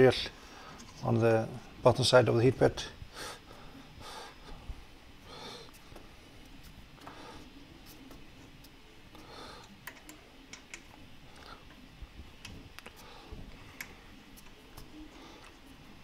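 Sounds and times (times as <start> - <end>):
soft breaths through nose: 3.0 - 8.1, 9.1 - 9.8, 12.8 - 16.0.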